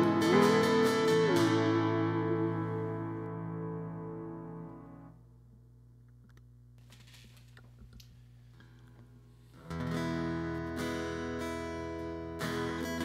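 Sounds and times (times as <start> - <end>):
acoustic guitar strumming: 0.0 - 5.1, 9.6 - 13.0.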